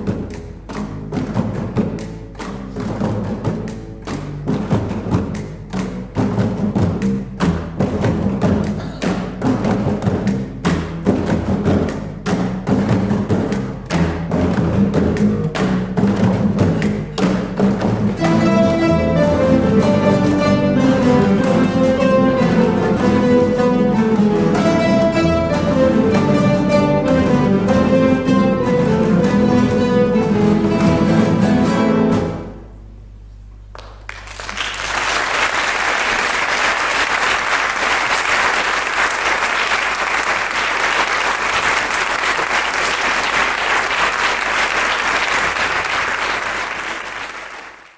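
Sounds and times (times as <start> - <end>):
classical guitars playing: 0.0 - 33.2
audience applauding: 33.8 - 47.9.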